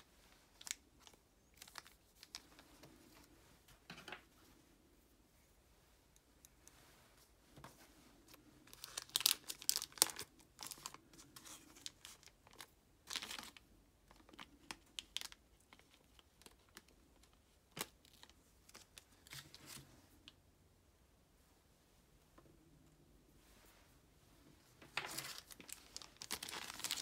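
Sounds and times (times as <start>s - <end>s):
plastic bag crinkling and tearing: 0.5s - 2.5s, 8.6s - 16.9s, 24.9s - 27.0s.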